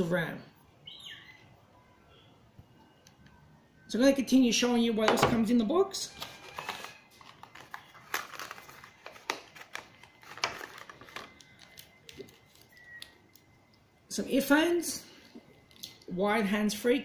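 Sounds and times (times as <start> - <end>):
plastic wrapping crinkling: 6.1 - 13.5.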